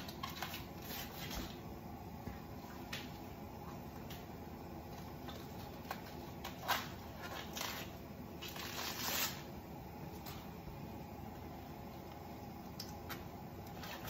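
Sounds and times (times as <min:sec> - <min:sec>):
steady low hum: 0:00.0 - 0:14.0
cabbage leaves tearing: 0:05.8 - 0:09.5.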